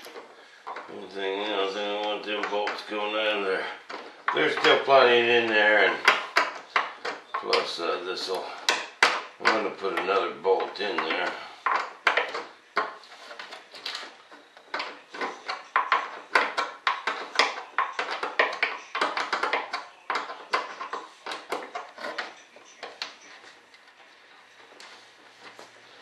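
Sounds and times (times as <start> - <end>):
hand tool clicks and metal knocks: 3.8 - 24.0.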